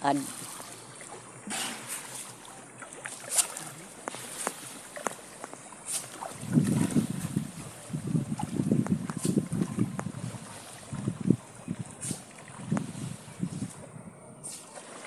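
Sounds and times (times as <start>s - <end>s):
sharp splashes: 0.0s - 13.3s, 14.4s - 15.0s
water lapping against a boat: 0.0s - 15.0s
wind rumbling on microphone: 6.2s - 14.4s.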